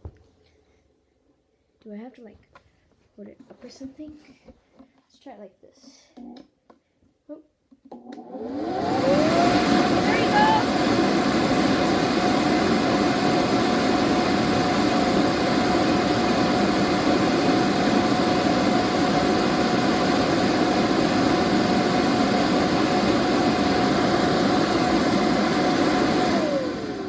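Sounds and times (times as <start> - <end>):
inflator blower running: 8.2 - 27.0.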